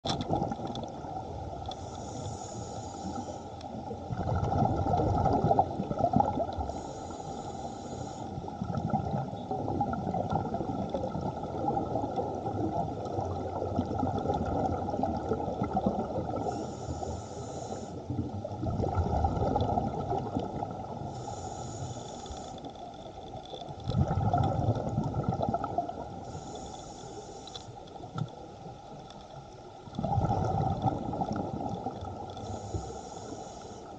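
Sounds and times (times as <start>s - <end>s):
regulator hiss on inhale: 1.6s - 4.0s, 6.5s - 8.7s, 16.3s - 18.4s, 20.9s - 23.1s, 26.2s - 28.1s, 32.2s - 33.9s
bubbling on exhale: 4.1s - 7.3s, 18.1s - 21.6s, 23.9s - 26.4s, 30.0s - 33.0s.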